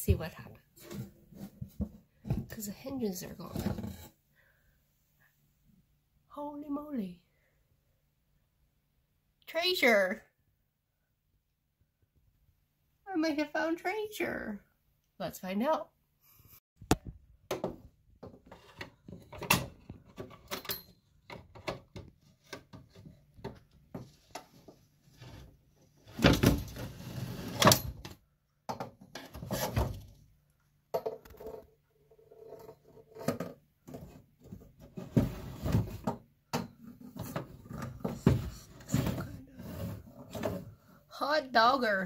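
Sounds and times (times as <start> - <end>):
box scraping on wooden shelf: 3.4 - 4.2, 25.0 - 28.0, 29.2 - 30.1, 33.9 - 36.1, 37.0 - 40.8.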